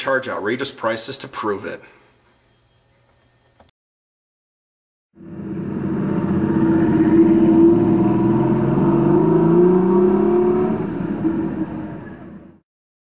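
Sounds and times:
vehicle engine revving: 0:05.2 - 0:12.6.

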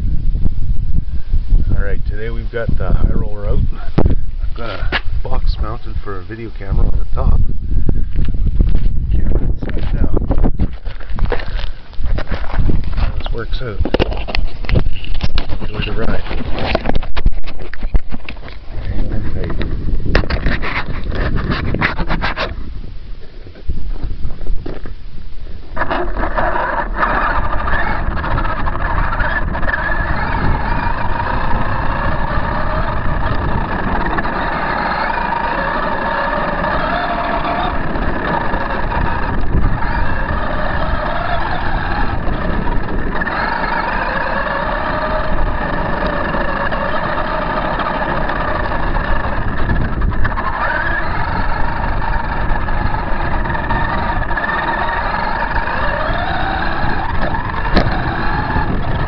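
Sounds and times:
steady rushing noise: 0:00.0 - 0:59.0
toy truck motor whining: 0:25.8 - 0:59.0.

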